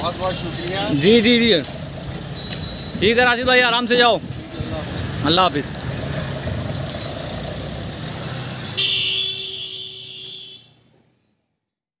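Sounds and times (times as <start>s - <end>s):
car engine pulling away: 0.0s - 8.8s
car horn: 8.8s - 10.8s.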